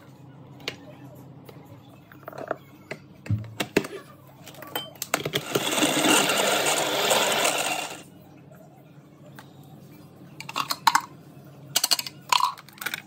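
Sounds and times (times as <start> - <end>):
hand blender motor whirring: 5.4 - 8.0.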